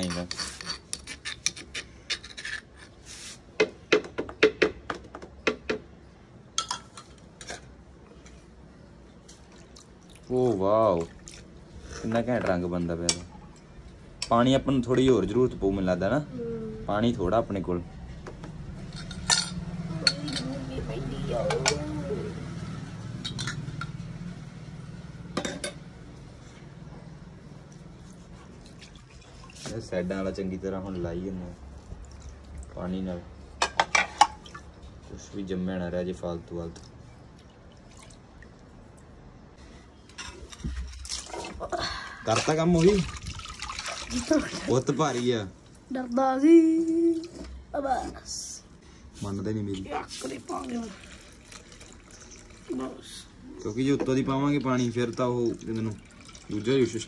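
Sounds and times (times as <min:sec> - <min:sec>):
metal spoon scraping a mortar: 0:00.0 - 0:03.4.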